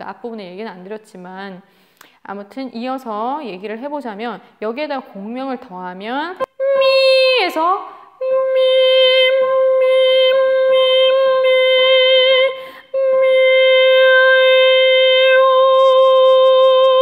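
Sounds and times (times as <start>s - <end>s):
woman breathing in: 1.6s - 2.2s, 12.6s - 12.9s
soprano singing high note: 6.6s - 17.0s.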